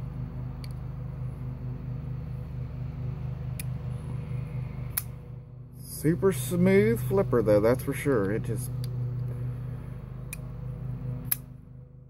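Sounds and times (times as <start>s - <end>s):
low pulsing hum: 0.0s - 12.0s
folding knife clicking open and shut: 11.2s - 11.5s.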